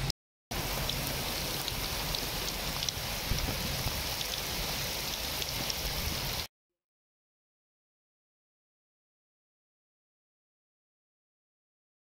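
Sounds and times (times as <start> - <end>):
steady rain: 0.0 - 6.5
raindrop ticks: 0.6 - 5.9.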